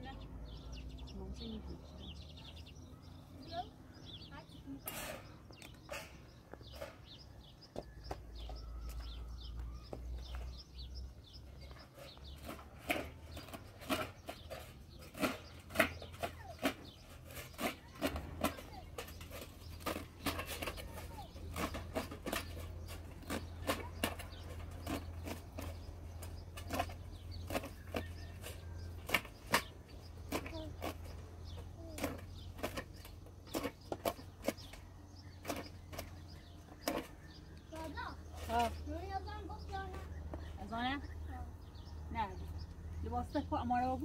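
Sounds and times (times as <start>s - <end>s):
faint bird chirps: 0.0s - 12.4s.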